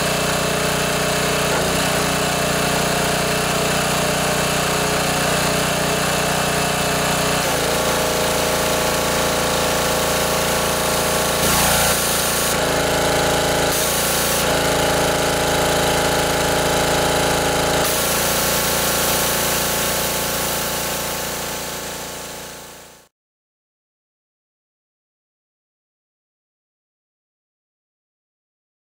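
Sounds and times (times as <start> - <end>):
pressure washer engine running: 0.0 - 23.1
water jet hissing: 7.4 - 16.2, 17.8 - 22.6.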